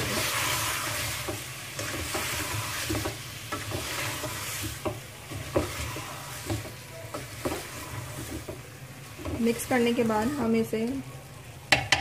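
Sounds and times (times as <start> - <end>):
spoon scraping and knocking a pot: 0.0 - 8.6
food sizzling: 0.0 - 12.0.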